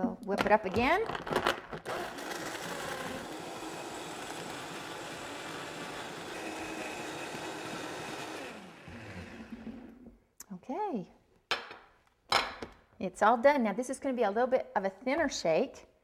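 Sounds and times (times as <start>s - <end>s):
blender crushing ice: 1.2s - 10.1s.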